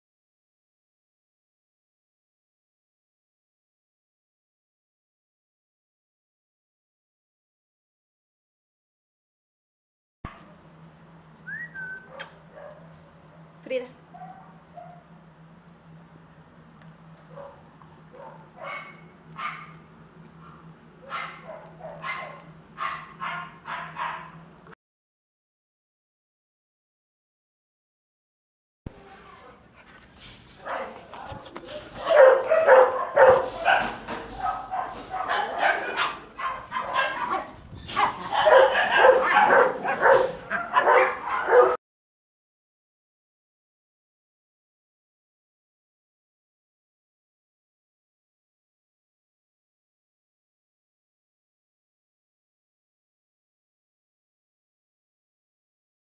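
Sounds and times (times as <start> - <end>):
dog yipping and barking: 12.0 - 12.8, 18.2 - 19.8, 21.0 - 24.3, 32.0 - 41.8.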